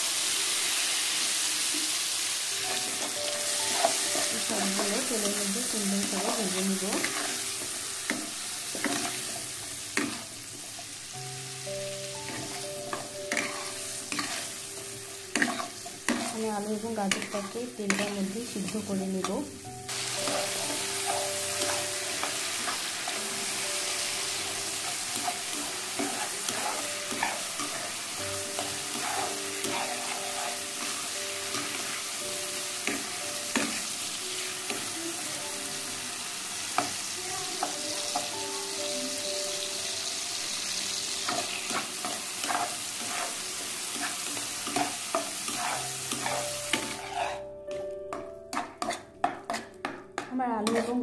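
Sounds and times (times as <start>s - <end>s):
vegetables sizzling in hot oil: 0.0s - 51.0s
spatula knocking and scraping pan: 8.1s - 10.8s, 12.2s - 22.8s, 24.8s - 32.0s, 41.2s - 51.0s.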